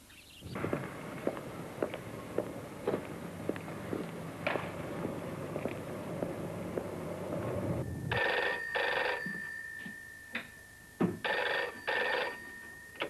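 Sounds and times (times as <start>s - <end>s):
low rumble: 0.4s - 8.1s
telephone bell ringing: 7.8s - 13.0s.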